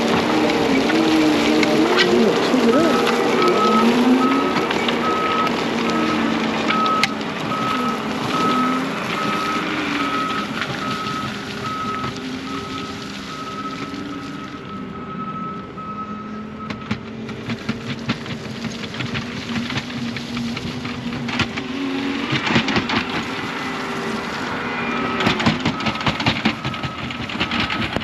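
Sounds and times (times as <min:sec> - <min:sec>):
diesel heavy equipment running: 0:00.0 - 0:28.0
backup alarm beeps: 0:02.3 - 0:16.9, 0:25.1 - 0:28.0.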